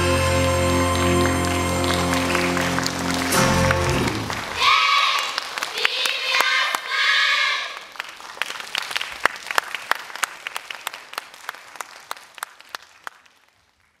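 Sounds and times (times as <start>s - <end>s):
music: 0.0s - 4.4s
audience applauding: 0.2s - 14.0s.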